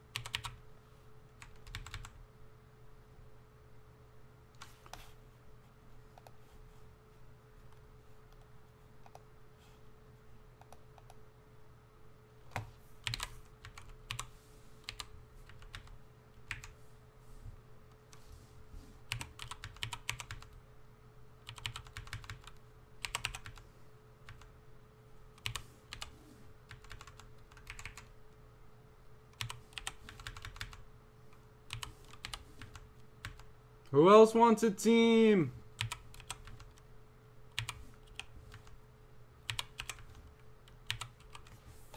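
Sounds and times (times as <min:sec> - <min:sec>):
faint steady hum: 0:00.0 - 0:41.9
keyboard typing: 0:00.1 - 0:00.6, 0:01.4 - 0:02.2, 0:12.5 - 0:16.8, 0:19.1 - 0:20.6, 0:21.4 - 0:23.6, 0:25.4 - 0:26.1, 0:26.7 - 0:28.1, 0:29.3 - 0:30.8, 0:31.7 - 0:33.5, 0:35.8 - 0:36.8, 0:37.5 - 0:38.8, 0:39.4 - 0:41.6.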